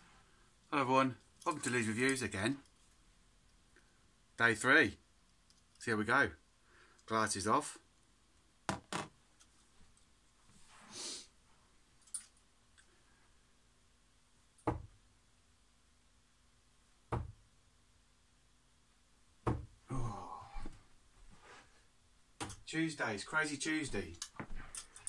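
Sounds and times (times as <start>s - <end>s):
person breathing: 6.6s - 7.1s, 10.7s - 11.3s, 19.9s - 21.9s.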